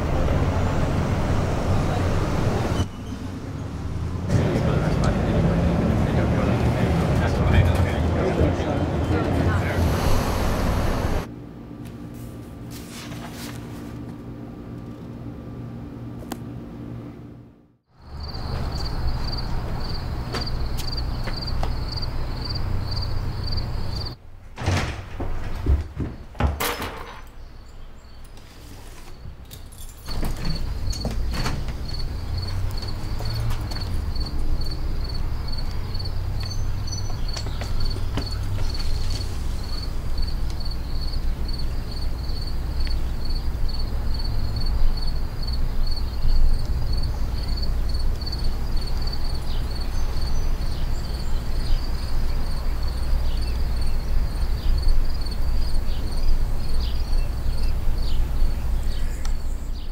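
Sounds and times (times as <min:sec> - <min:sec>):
crickets chirping: 0:17.9 - 0:24.2, 0:30.0 - 0:59.8.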